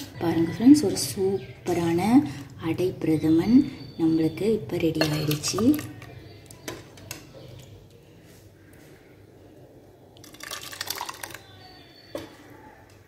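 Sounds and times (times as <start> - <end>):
liquid pouring and splashing: 10.2 - 11.5.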